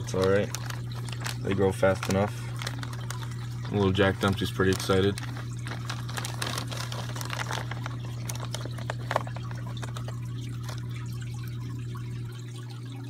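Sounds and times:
plastic bags clicking: 0.0 - 11.1
aquarium water trickling: 0.0 - 13.0.

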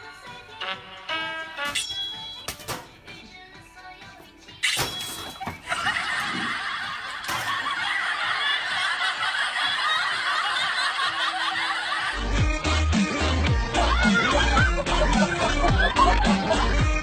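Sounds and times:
crowd laughing: 5.4 - 17.0.

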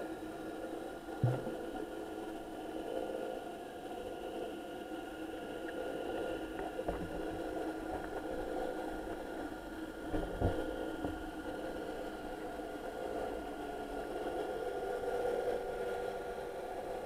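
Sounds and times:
underwater drone: 0.0 - 17.0
low thumps: 1.2 - 1.6.

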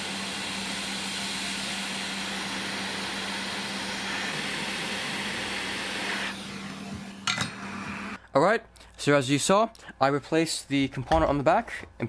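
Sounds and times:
hot air rushing hiss: 0.0 - 8.2.

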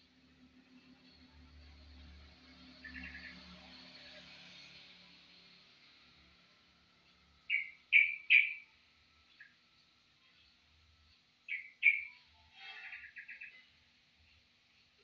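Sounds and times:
bird chirping and trilling: 7.5 - 8.7, 11.5 - 13.8.

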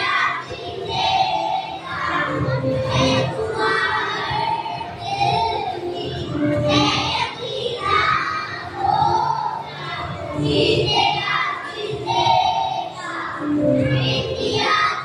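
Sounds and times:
children's choir singing: 0.0 - 15.0.

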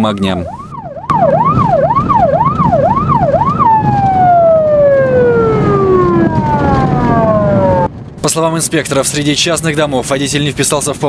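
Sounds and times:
road noise: 0.0 - 11.0
police siren: 0.4 - 7.9
car engine: 0.6 - 8.2.

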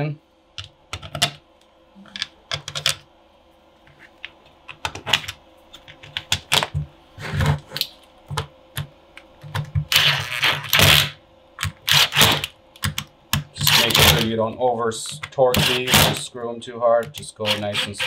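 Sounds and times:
power driver driving screw: 13.6 - 14.3, 15.5 - 16.2, 17.4 - 18.0.

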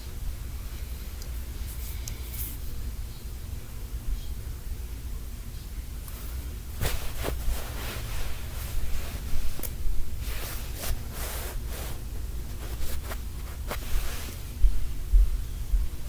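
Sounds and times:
steady low hum: 0.0 - 16.0
fabric rustling: 6.3 - 14.7.

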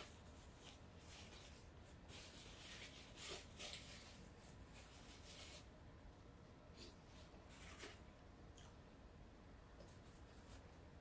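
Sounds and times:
paper napkin rustling: 0.0 - 6.0.

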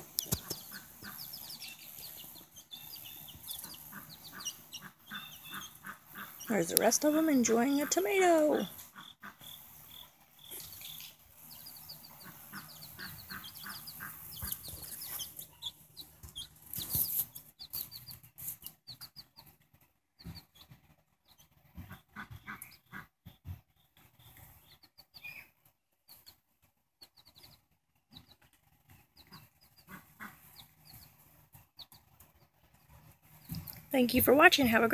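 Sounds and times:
chickens clucking softly: 0.0 - 8.0
chicks peeping: 0.0 - 34.8.

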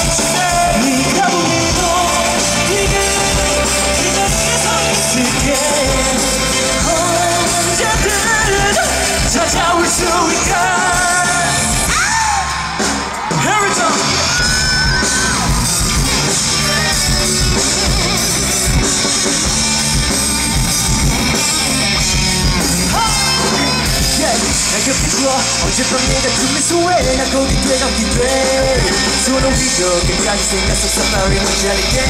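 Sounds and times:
person singing: 0.0 - 12.5, 22.9 - 32.0
rock band playing live: 0.0 - 32.0.

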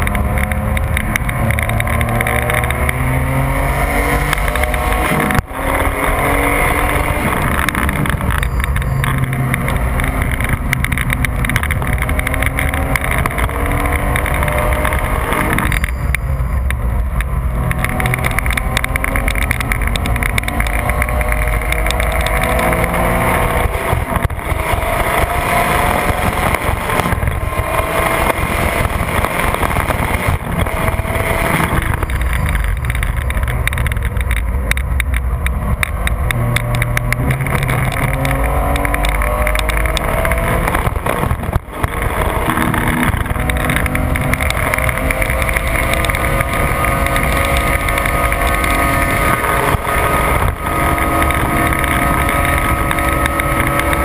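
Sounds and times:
car engine from inside cabin: 0.0 - 54.0
road noise: 0.0 - 54.0
wind noise: 0.0 - 54.0.

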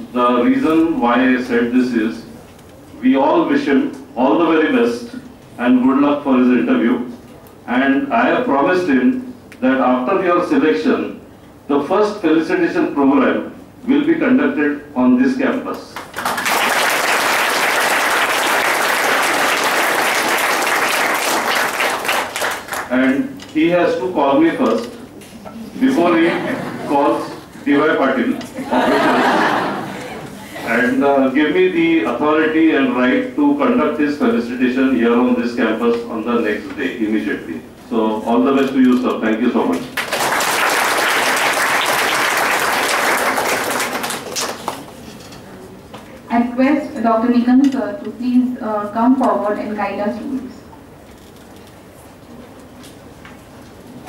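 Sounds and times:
audience applauding: 16.0 - 22.9, 40.0 - 44.9.

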